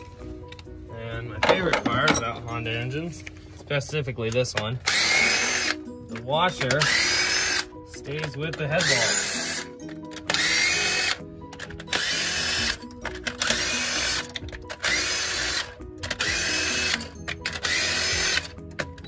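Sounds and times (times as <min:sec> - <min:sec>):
impact gun motor whine: 0:04.9 - 0:05.8, 0:06.8 - 0:07.7, 0:10.3 - 0:11.2, 0:11.9 - 0:18.5.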